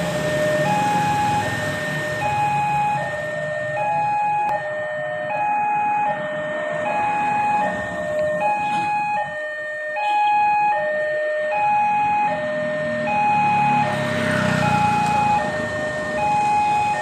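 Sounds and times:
level crossing two-tone alarm: 0.0 - 17.0
road traffic: 0.0 - 17.0
car driving past: 12.4 - 17.0.

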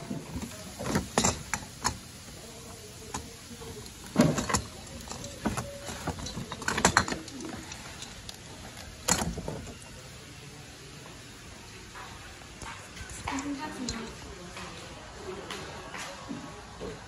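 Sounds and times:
boxes being handled: 0.0 - 10.0.

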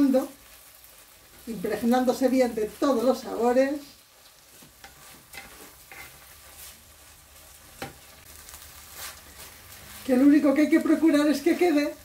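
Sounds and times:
faint frying sizzle: 0.0 - 12.0
wooden spoon scraping pan: 4.5 - 8.1.

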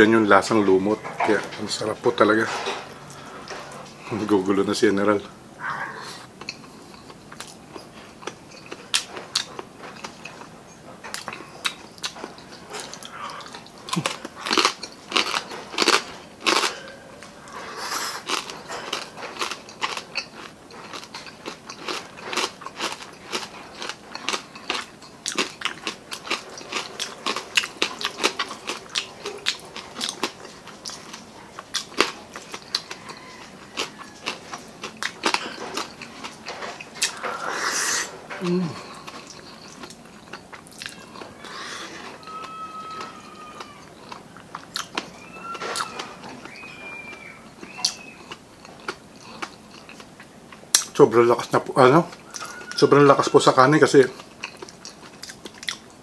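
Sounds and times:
person chewing wetly: 5.6 - 56.0
mouth clicks and smacks: 50.7 - 51.0.

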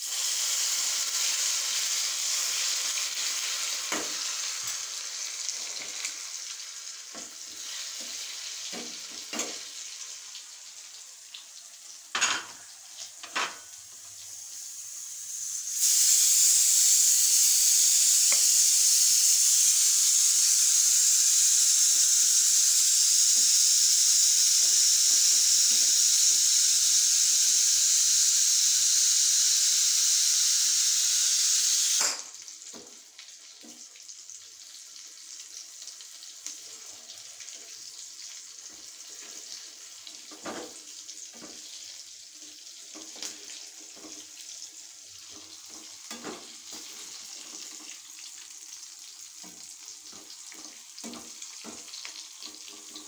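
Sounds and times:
loud steady hiss: 0.0 - 6.2, 14.3 - 32.4
hot oil sizzling: 0.0 - 53.0.

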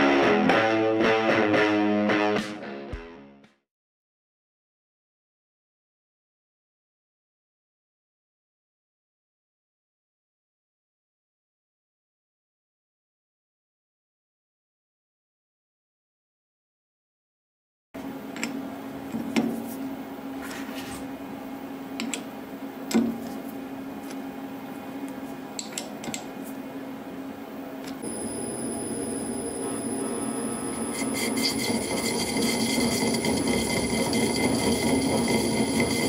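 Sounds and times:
lathe spindle whining: 28.0 - 36.0.

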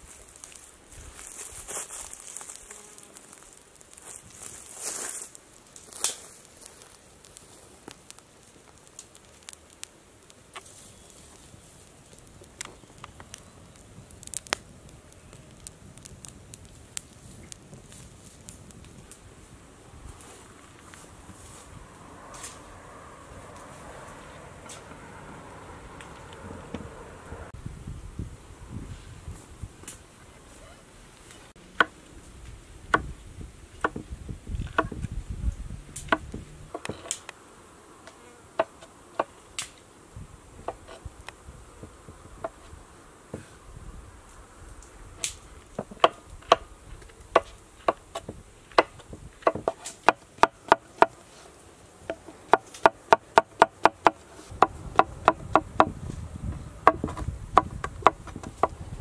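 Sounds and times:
low buzz: 21.6 - 28.9.

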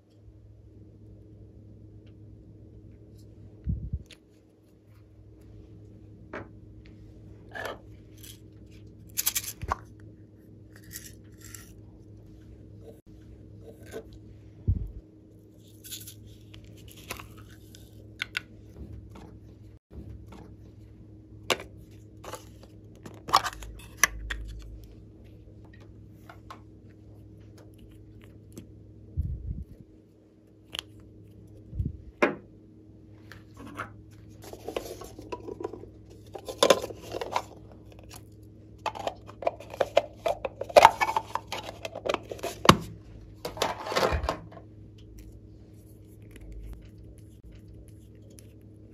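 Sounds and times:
faint steady hum: 0.0 - 48.9
plastic containers clicking and rattling: 38.8 - 44.6.

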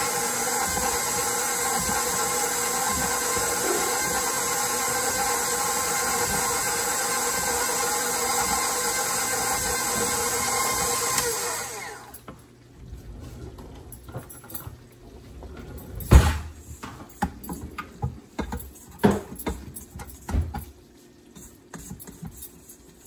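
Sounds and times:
electric stand mixer running: 0.0 - 12.2.

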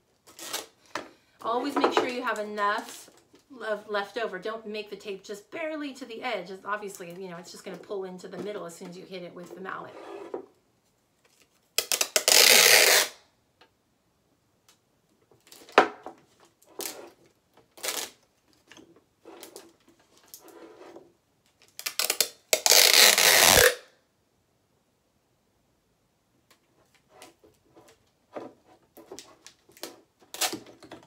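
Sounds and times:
tape crackling: 0.1 - 3.6, 10.9 - 13.2, 15.4 - 20.6, 21.4 - 23.9, 26.5 - 31.0
packing tape ripping: 0.3 - 0.8, 11.3 - 13.2, 17.7 - 18.2, 21.6 - 23.9, 29.2 - 30.8.

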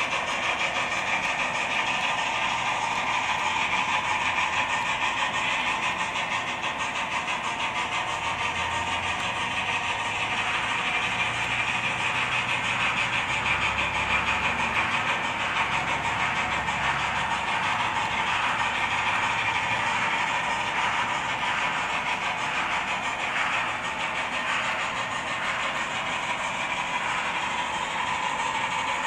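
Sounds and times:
steam exhaust chuffs from small speakers: 0.0 - 29.0.

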